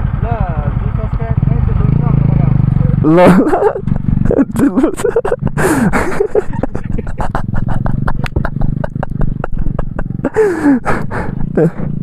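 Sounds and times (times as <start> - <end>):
motorcycle engine humming: 0.0 - 12.0
sharp knocks and clatter: 3.8 - 4.3, 7.1 - 10.1.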